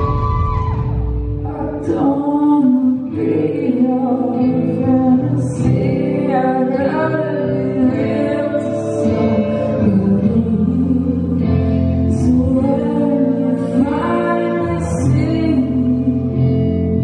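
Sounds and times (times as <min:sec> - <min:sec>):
live rock band playing: 0:00.0 - 0:01.9
electric guitar: 0:00.0 - 0:17.0
person singing long notes: 0:00.0 - 0:17.0.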